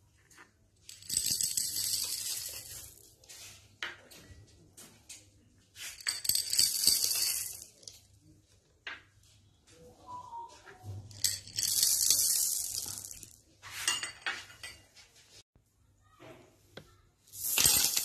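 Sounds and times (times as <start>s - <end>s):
beads clattering onto wooden table: 0.3s - 4.2s, 5.8s - 8.1s, 10.9s - 14.8s, 17.3s - 18.0s.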